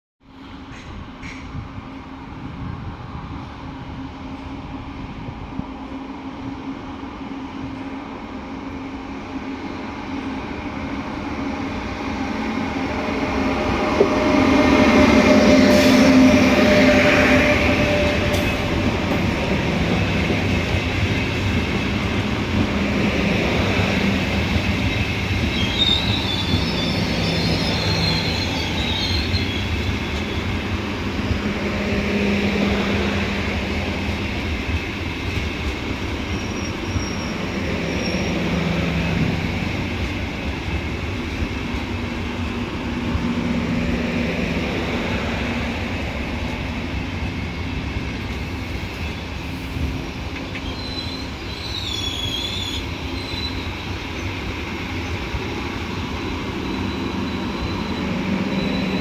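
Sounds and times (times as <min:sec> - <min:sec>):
train rumbling past: 0:00.3 - 0:59.0
brake and wheel squeal: 0:24.9 - 0:30.6, 0:36.2 - 0:38.6, 0:50.5 - 0:54.3, 0:56.2 - 0:59.0.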